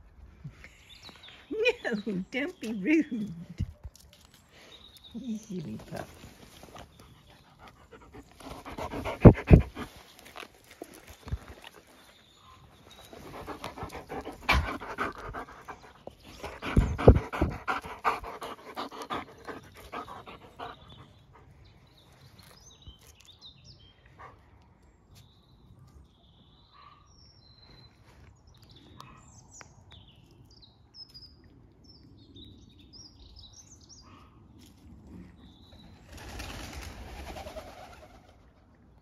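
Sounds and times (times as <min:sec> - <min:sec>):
large dog panting: 0:06.8 - 0:10.0, 0:13.0 - 0:21.8.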